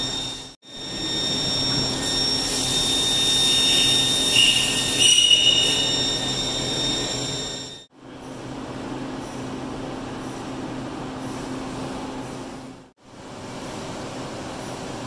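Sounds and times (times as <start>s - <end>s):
lathe whining: 0.0s - 7.9s
shrill cutting squeals: 0.0s - 7.9s.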